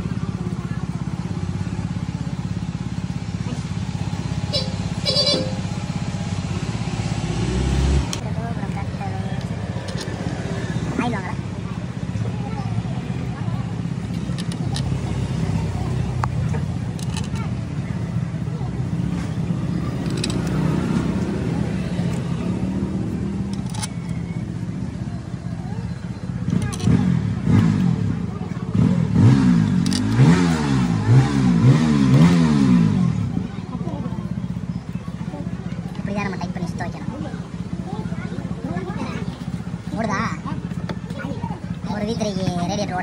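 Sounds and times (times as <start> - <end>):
small motorcycle engine idling: 0.0 - 43.0
brief high-pitched sounds: 4.4 - 5.9.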